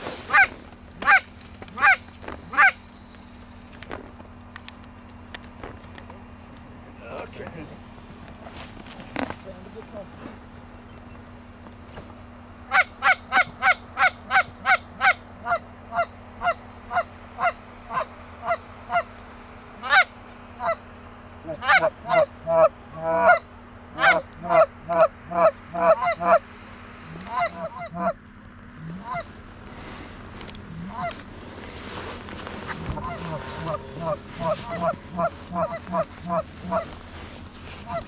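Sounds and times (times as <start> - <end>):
goose honks and clucks: 0.3 - 2.8, 12.7 - 19.2, 19.8 - 20.8, 21.4 - 26.4, 27.1 - 28.2, 28.8 - 29.3, 30.7 - 31.2, 32.7 - 37.0, 37.8 - 38.0.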